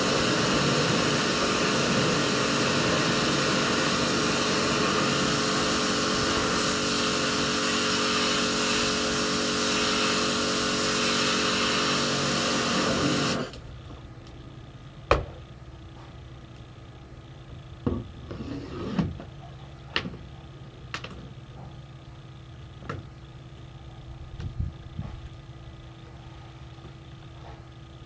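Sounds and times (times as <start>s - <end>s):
pressure washer spraying: 0.0s - 13.5s.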